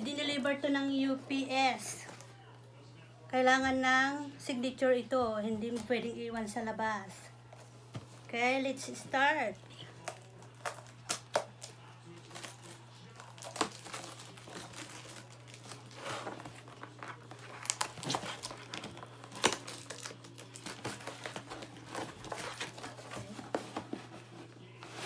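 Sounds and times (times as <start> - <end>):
paper packaging crinkling: 10.0 - 25.0.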